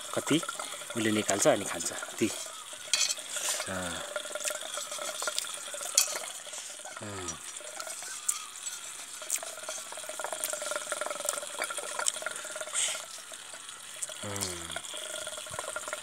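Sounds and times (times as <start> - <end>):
running water: 0.0 - 16.0
short voice: 7.0 - 7.4, 14.2 - 14.8.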